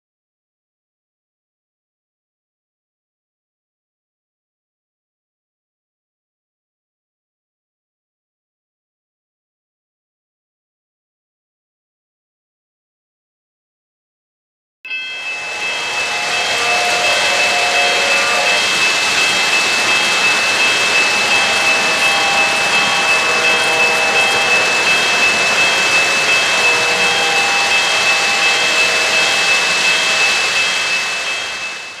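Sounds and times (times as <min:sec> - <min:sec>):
high whine: 0:15.0 - 0:32.0
model train wheels rumbling: 0:15.2 - 0:32.0.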